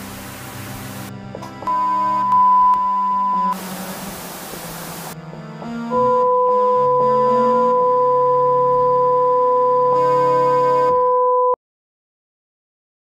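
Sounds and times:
static-like hiss: 0.0s - 1.2s, 3.4s - 5.2s
electronic keyboard music: 0.0s - 9.0s
high beep tone: 1.7s - 3.6s, 5.9s - 7.0s
two-tone beep: 1.7s - 3.6s, 6.0s - 7.0s, 7.7s - 11.6s.

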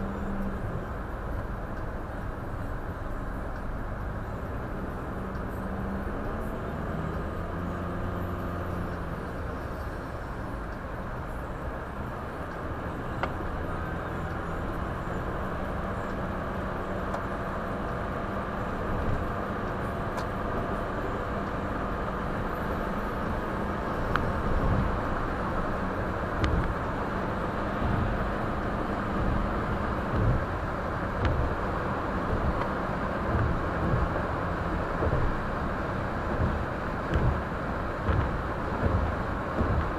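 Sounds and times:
car engine and road noise: 0.0s - 39.9s
short low thumps: 36.3s - 39.9s.

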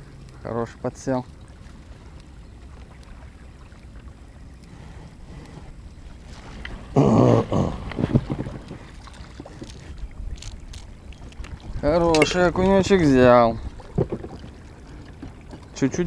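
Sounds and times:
wind and water around boat: 0.0s - 16.0s.

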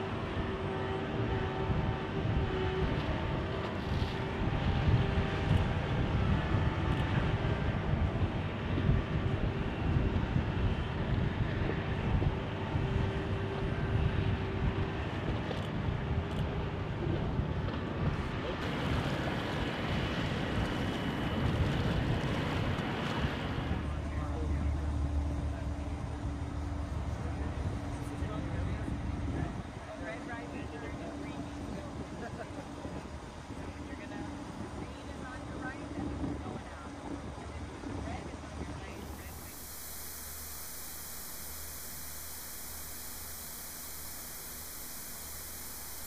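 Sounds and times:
wind: 0.0s - 46.0s.

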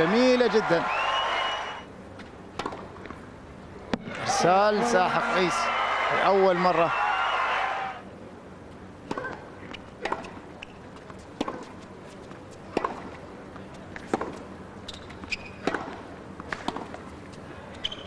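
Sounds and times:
racket striking tennis ball: 2.6s - 2.9s, 9.0s - 11.8s, 12.6s - 17.1s
ball bouncing on hard court: 14.0s - 17.0s
shoe squeaks: 14.8s - 15.7s, 17.8s - 18.0s.

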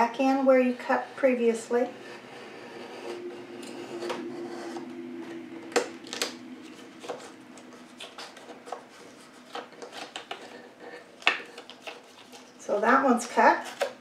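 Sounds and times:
craft knife scraping paper: 8.0s - 12.6s.

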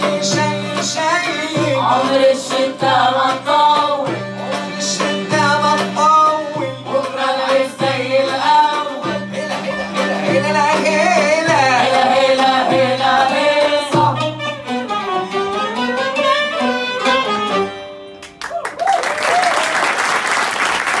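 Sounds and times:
oud violin and accordion ensemble: 0.0s - 7.7s, 8.6s - 18.3s
voices singing: 0.0s - 15.8s
audience applause: 18.2s - 21.0s.

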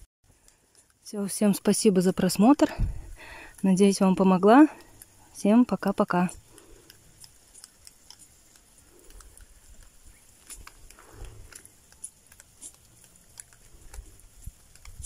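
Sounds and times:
ducklings pecking clicks: 4.7s - 15.0s.

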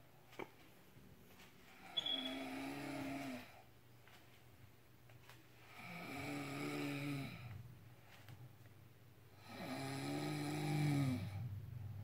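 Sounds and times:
woman snoring: 2.2s - 3.6s, 5.7s - 7.6s, 9.4s - 11.5s.

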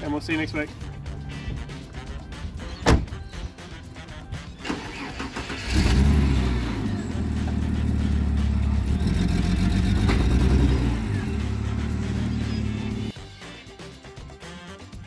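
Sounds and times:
car engine starting and running: 4.6s - 13.1s.

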